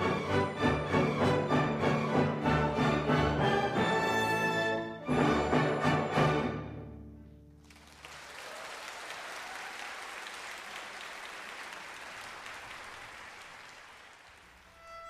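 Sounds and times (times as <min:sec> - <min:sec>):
audience applause: 0:07.6 - 0:14.8.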